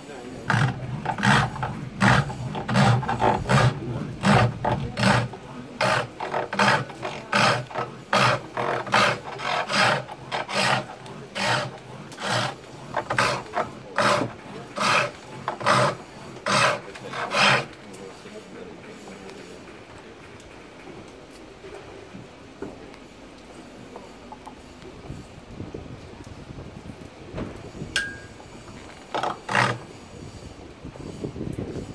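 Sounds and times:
lathe tool rasping into wood: 0:00.4 - 0:17.8, 0:29.1 - 0:29.9.

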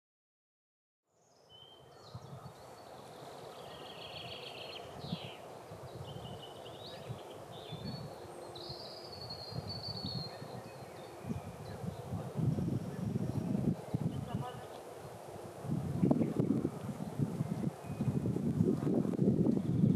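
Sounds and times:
small birds chirping: 0:01.1 - 0:14.9.

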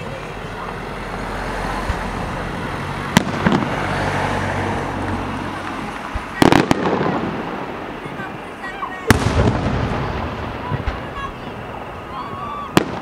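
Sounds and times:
firework bangs: 0:00.0 - 0:13.0
steady background noise: 0:00.0 - 0:13.0.

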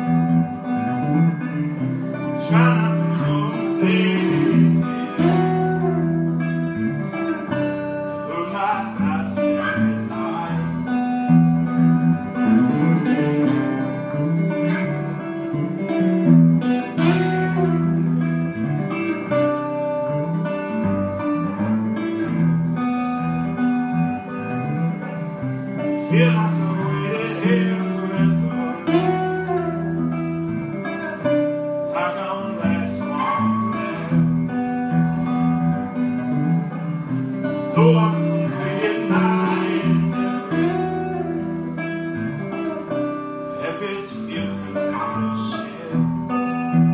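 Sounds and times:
acoustic guitar playing: 0:00.0 - 0:46.9
man singing into microphone: 0:02.3 - 0:06.1, 0:08.1 - 0:11.3, 0:26.0 - 0:29.4, 0:31.8 - 0:34.6, 0:37.5 - 0:40.9, 0:43.5 - 0:46.3.

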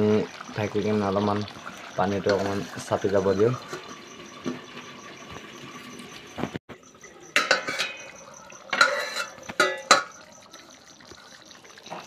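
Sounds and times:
metal lid clanking on pan rim: 0:07.3 - 0:10.2.

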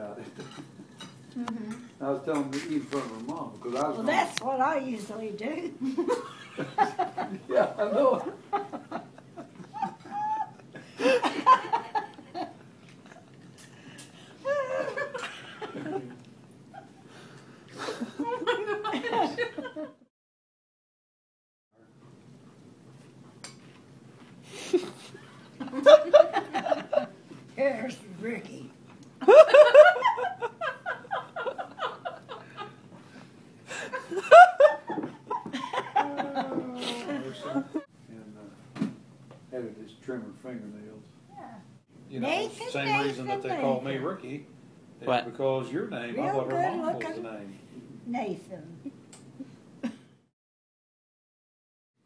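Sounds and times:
elderly woman laughing: 0:05.8 - 0:12.5, 0:14.4 - 0:17.0, 0:17.8 - 0:19.9, 0:24.6 - 0:27.1, 0:29.2 - 0:32.8, 0:33.7 - 0:37.8.

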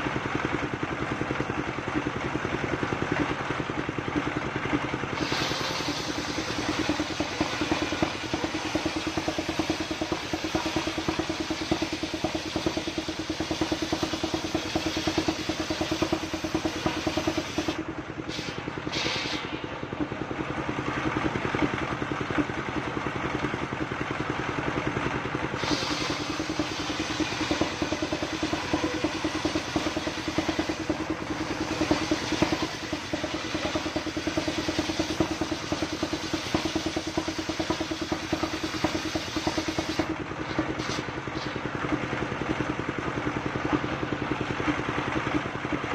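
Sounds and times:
sawmill engine running: 0:00.0 - 0:45.9
saw blade cutting log: 0:05.2 - 0:19.5.

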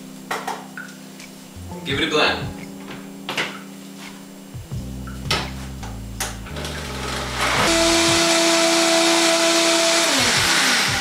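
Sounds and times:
blender motor running: 0:06.6 - 0:11.0.

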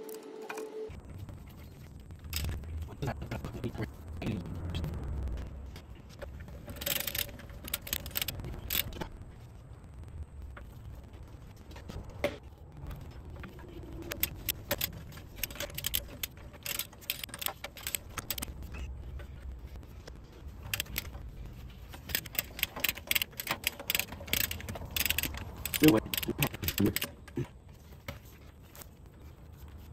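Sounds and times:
socket ratchet clicking: 0:06.8 - 0:08.9, 0:14.2 - 0:18.5, 0:20.7 - 0:21.1, 0:22.0 - 0:27.2.

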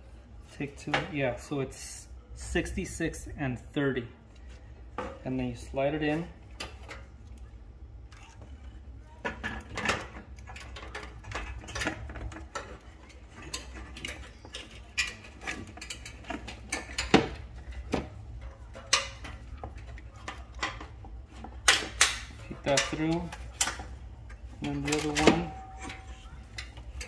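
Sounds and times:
metal clinks taps and scrapes: 0:08.1 - 0:27.0.

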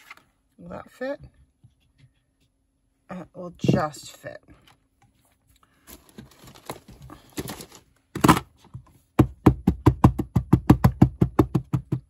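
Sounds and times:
rubber stamp tapping ink pad: 0:09.2 - 0:12.0.

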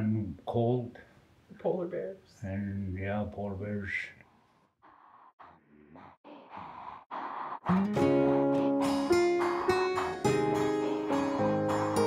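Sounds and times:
acoustic guitar strumming: 0:07.7 - 0:12.0.

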